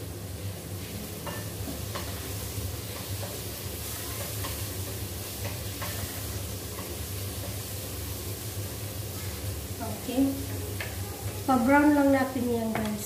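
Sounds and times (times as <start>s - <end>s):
aromatics sizzling in a wok: 0.0s - 13.0s
spatula tapping a pan: 1.2s - 7.7s, 10.4s - 11.0s, 12.7s - 13.0s.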